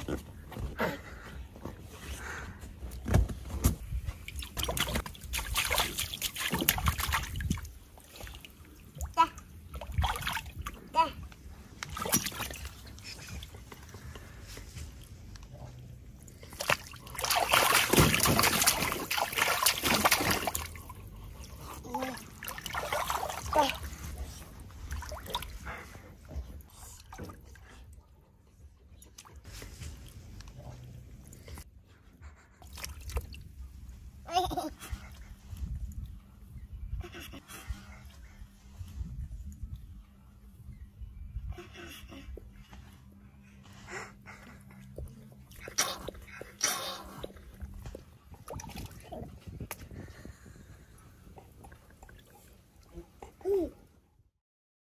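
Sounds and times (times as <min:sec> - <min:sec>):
shallow water splashing and trickling: 0:03.8 - 0:31.6, 0:32.6 - 0:34.0, 0:45.4 - 0:53.4
water splashing in paddling pool: 0:04.2 - 0:13.1, 0:16.4 - 0:26.0.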